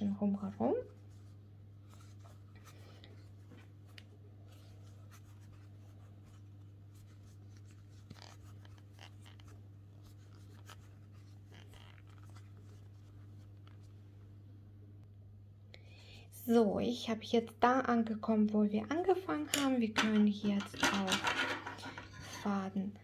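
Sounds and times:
crochet hook scratching yarn: 4.5s - 13.8s.

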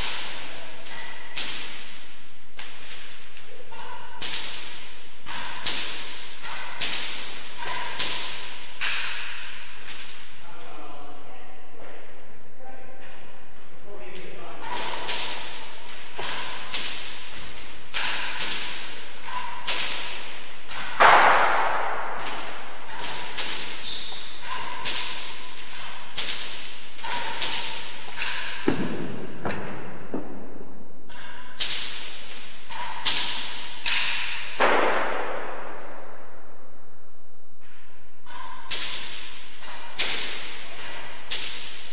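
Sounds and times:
ball cracking off rackets and walls: 14.6s - 36.2s.

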